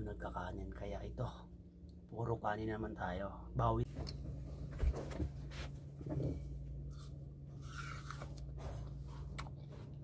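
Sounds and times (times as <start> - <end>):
steady low hum: 0.0 - 10.0
food being chewed: 6.1 - 10.0.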